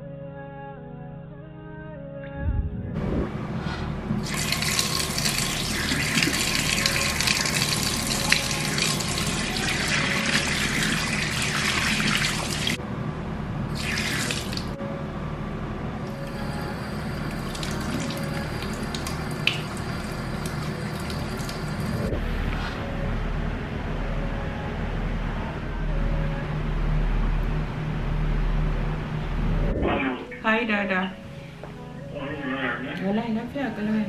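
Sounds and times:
tap water running into sink: 0:04.2 - 0:12.8, 0:13.8 - 0:14.8, 0:17.1 - 0:22.0
toothbrush and hands rinsed: 0:04.2 - 0:12.8.

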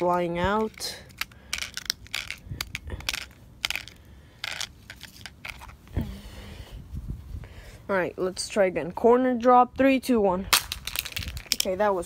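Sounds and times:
device handling clicks and scrapes: 0:00.0 - 0:05.8.

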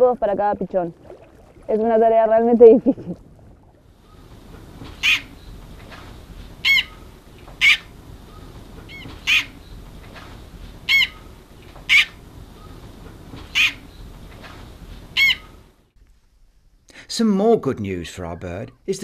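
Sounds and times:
bird chick peeping: 0:04.0 - 0:05.6, 0:06.6 - 0:09.8, 0:10.8 - 0:14.1, 0:15.1 - 0:15.6.

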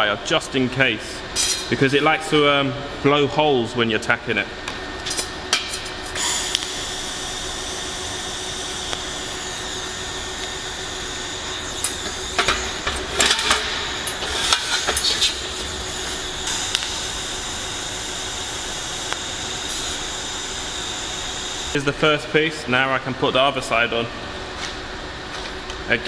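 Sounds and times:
welding torch hiss and hum: 0:05.0 - 0:22.1.

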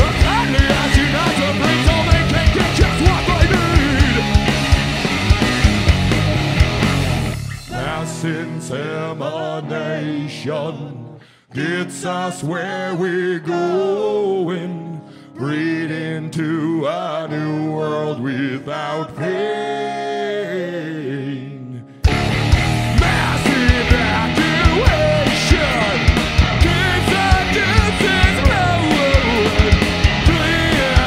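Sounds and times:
man singing over guitar: 0:00.0 - 0:04.4, 0:07.6 - 0:22.0, 0:22.9 - 0:31.0
live rock band: 0:00.0 - 0:09.0, 0:22.0 - 0:31.0.

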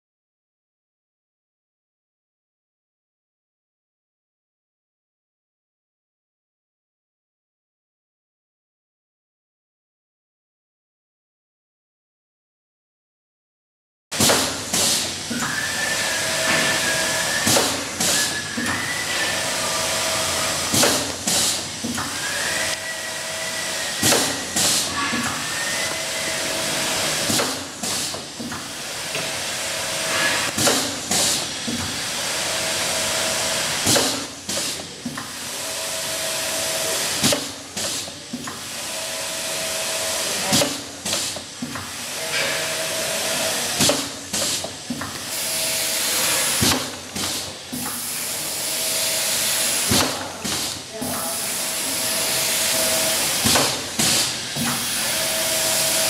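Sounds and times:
machine hiss: 0:14.2 - 0:56.0.

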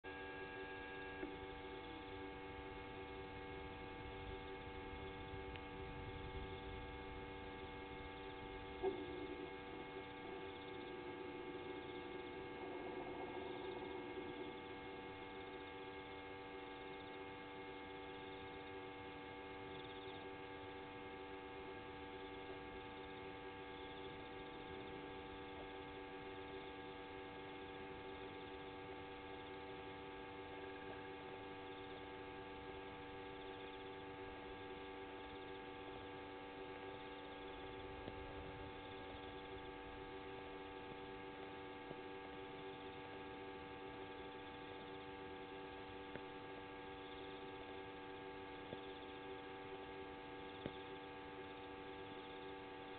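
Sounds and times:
electrical hum: 0:00.0 - 0:52.9.

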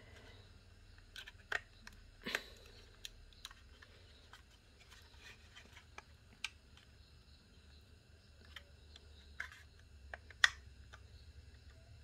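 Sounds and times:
plastic case clicking and creaking: 0:01.0 - 0:06.9.

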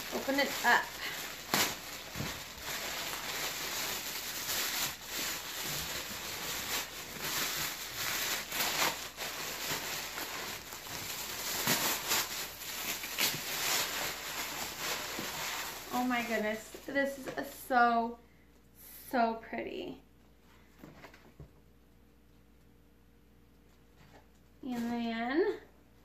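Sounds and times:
plastic bag crinkling: 0:00.0 - 0:17.2
tissue paper rustling: 0:00.0 - 0:17.2.

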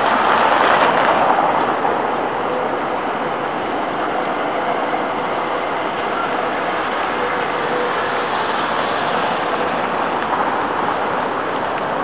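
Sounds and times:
tram wheels rumbling on rails: 0:00.0 - 0:12.0.

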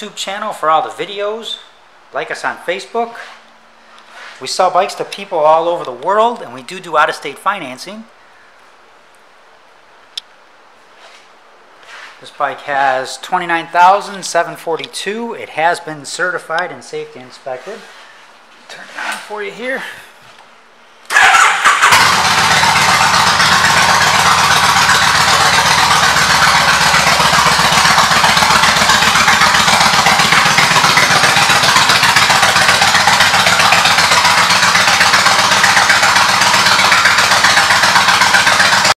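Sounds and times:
motorcycle engine idling: 0:21.1 - 0:39.0.

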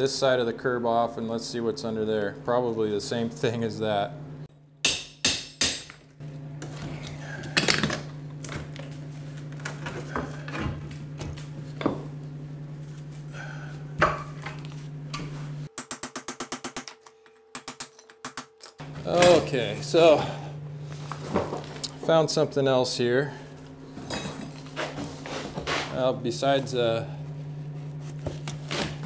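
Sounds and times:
steady low hum: 0:00.0 - 0:29.0
hammer striking steel pry bar: 0:04.8 - 0:06.0, 0:15.8 - 0:18.8.

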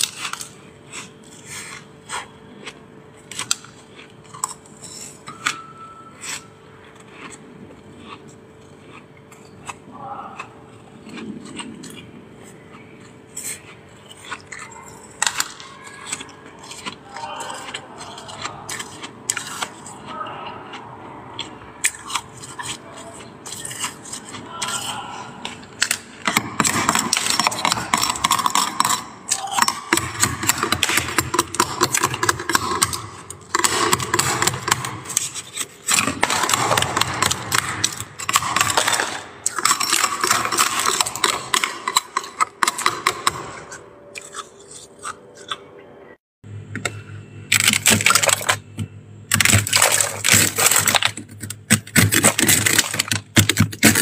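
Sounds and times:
metal spatula scraping frost: 0:21.9 - 0:25.7.

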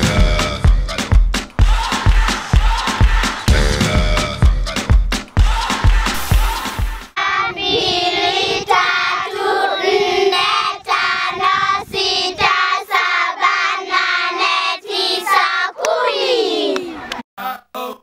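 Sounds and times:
children singing in unison: 0:05.5 - 0:17.1.

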